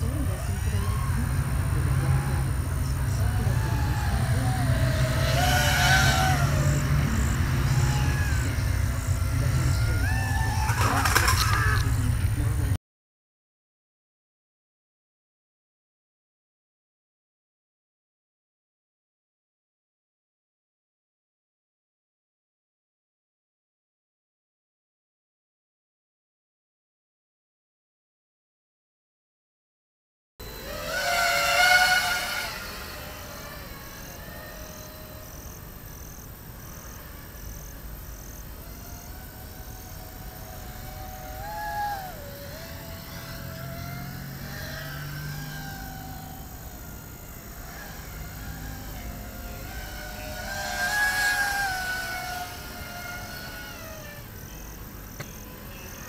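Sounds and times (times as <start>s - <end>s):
quadcopter motors whining: 0.0s - 12.8s, 30.4s - 56.0s.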